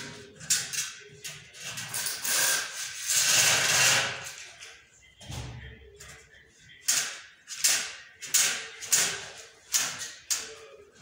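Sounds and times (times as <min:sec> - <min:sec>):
metal profiles scraping on concrete: 0:01.6 - 0:04.4.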